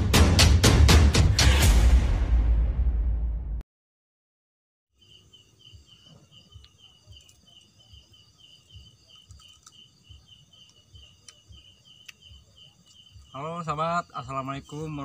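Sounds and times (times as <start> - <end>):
cricket chirping: 4.9 - 15.0
high drone of night insects: 5.0 - 15.0.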